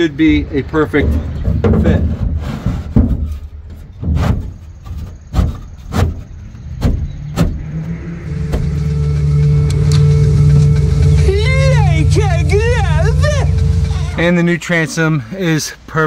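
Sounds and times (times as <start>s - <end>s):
board knocking against boat frame: 5.3s - 7.6s
low engine hum: 5.5s - 15.4s.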